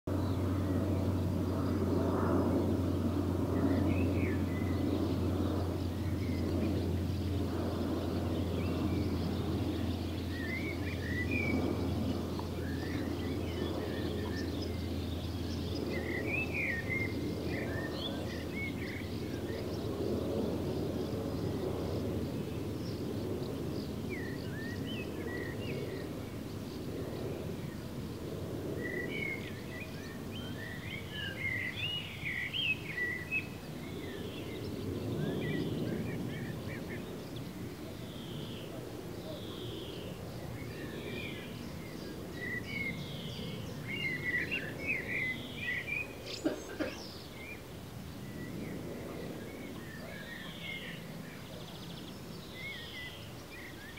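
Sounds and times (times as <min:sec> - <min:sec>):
steady low rumble: 0:00.1 - 0:24.3.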